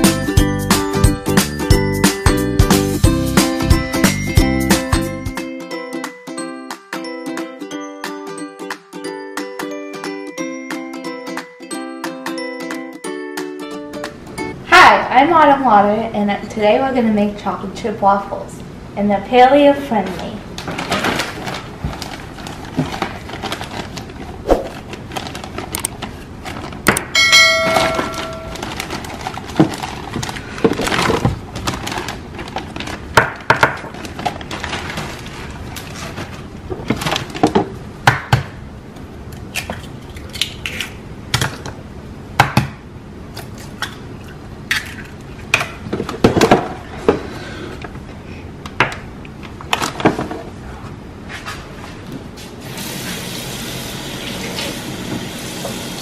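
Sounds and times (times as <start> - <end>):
plastic bag rustling: 20.6 - 26.9, 27.7 - 37.5
short ringing tone: 27.2 - 28.6.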